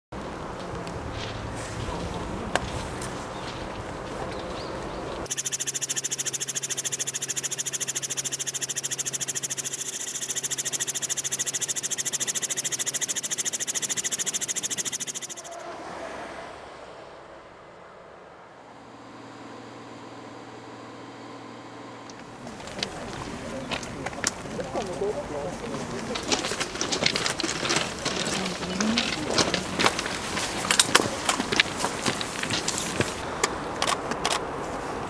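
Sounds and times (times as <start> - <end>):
outdoor background noise: 0.1 - 35.0
helicopter rotor with high whine: 5.3 - 15.6
low hum: 5.3 - 33.2.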